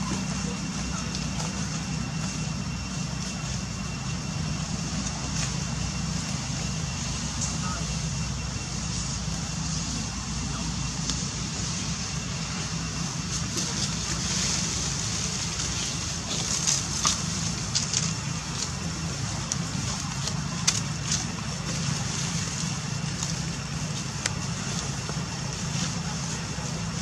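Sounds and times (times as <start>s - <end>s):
light clicks and crackles: 15.6s - 18.8s, 19.4s - 26.0s.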